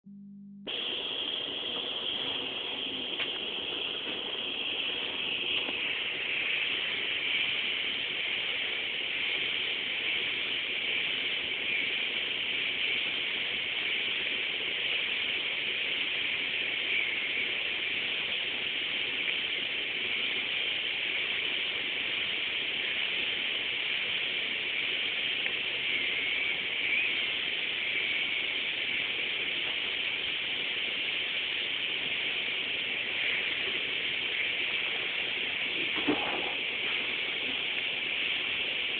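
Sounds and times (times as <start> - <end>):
faint low hum: 0.1 - 5.8
steady hiss: 0.7 - 38.9.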